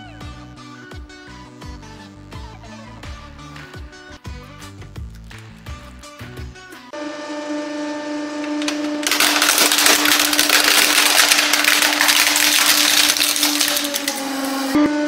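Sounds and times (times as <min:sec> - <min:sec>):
hydraulic press humming: 0:07.0 - 0:10.4
plastic toy car crunching: 0:08.4 - 0:14.8.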